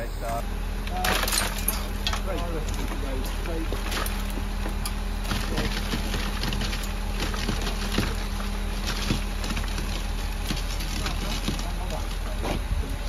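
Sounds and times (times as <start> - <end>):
concrete pump truck humming: 0.0 - 13.0
knocks and clatter on wood: 3.7 - 12.7.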